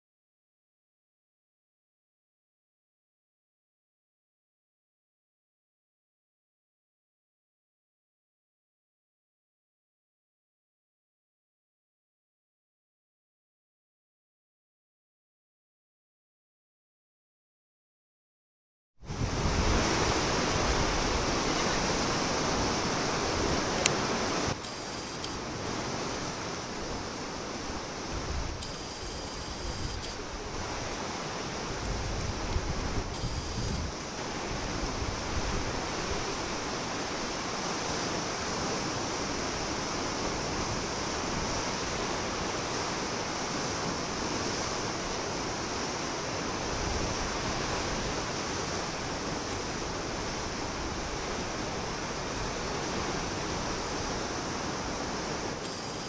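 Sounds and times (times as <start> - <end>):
wind and surf: 19.0 - 56.0
wind gusts on microphone: 19.0 - 56.0
brief click: 24.6 - 25.4.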